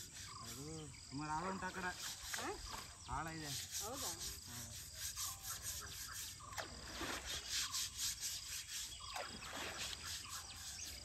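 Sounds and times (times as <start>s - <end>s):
insects calling: 0.0s - 11.0s
bird chirps: 5.1s - 11.0s.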